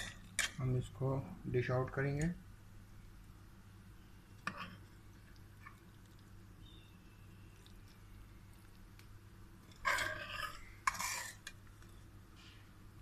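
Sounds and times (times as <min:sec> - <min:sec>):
metal spoon scraping steel pot: 0:09.7 - 0:11.6.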